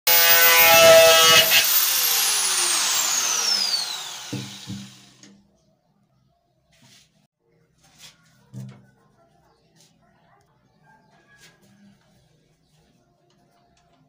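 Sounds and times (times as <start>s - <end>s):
angle grinder whine: 0.1s - 5.2s
grinder knocking on concrete floor: 0.1s - 5.2s.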